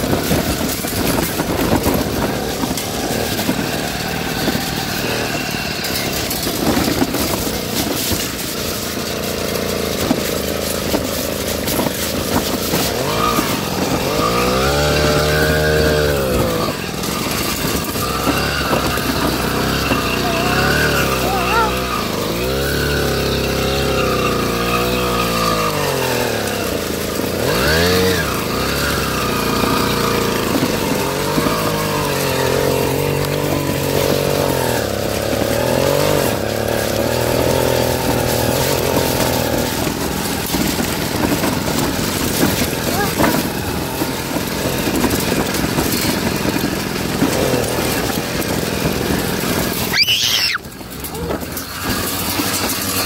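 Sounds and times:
small engine revving: 0:00.0 - 0:53.0.

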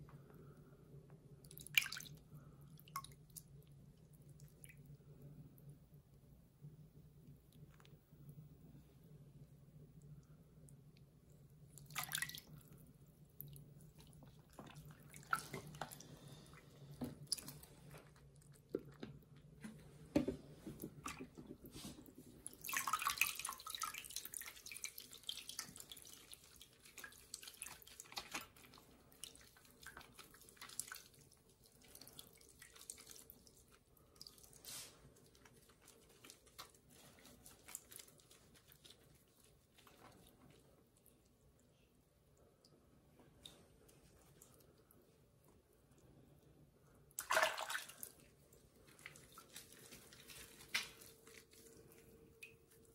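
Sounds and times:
water splashing in a sink: 0:01.4 - 0:05.2, 0:10.0 - 0:41.6, 0:47.1 - 0:52.9.

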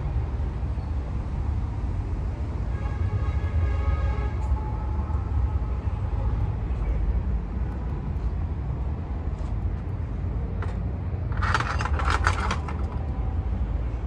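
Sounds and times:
metal gate rattling and clanking: 0:10.6 - 0:13.2.

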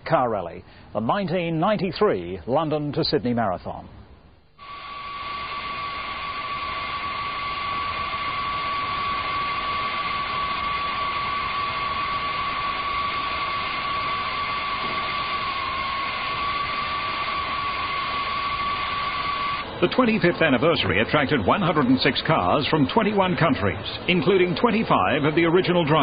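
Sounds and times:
turbine whine: 0:04.5 - 0:26.0.

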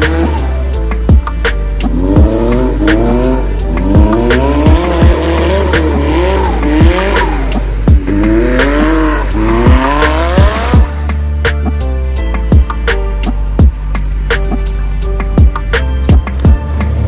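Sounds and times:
car engine revving: 0:00.0 - 0:11.9
music with steady beat: 0:00.0 - 0:17.0.

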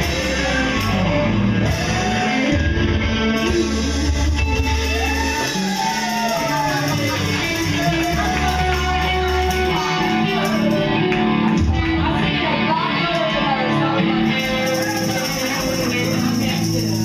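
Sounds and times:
live rock band playing: 0:00.0 - 0:17.0
sliding guitar lead melody: 0:00.0 - 0:17.0.

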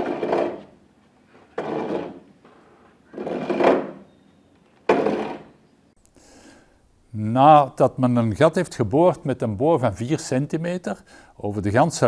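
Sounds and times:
auger grinding through wood: 0:00.0 - 0:04.1, 0:04.9 - 0:05.6.

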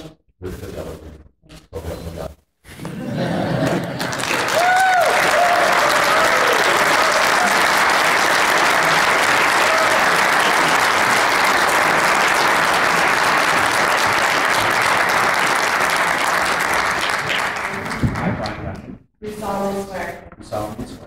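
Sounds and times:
audience applauding: 0:02.8 - 0:18.8.

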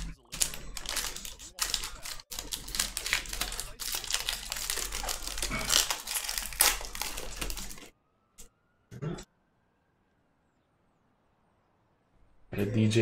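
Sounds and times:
foil wrappers crinkling and tearing: 0:00.0 - 0:07.9.

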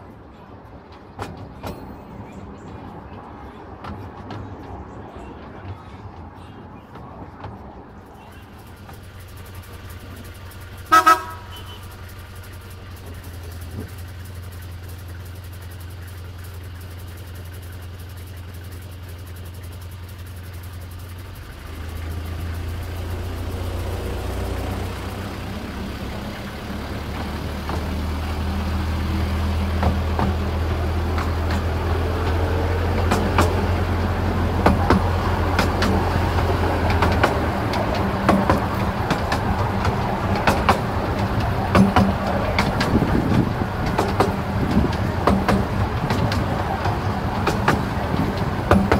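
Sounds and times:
train running drone: 0:00.0 - 0:48.9
wheels clicking over track: 0:00.0 - 0:48.9
train whistle toot: 0:10.9 - 0:11.9.

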